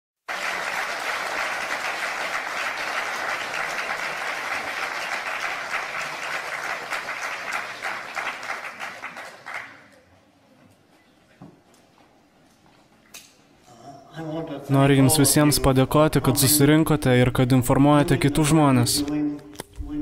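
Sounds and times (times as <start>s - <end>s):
audience applauding: 0.3s - 10.2s.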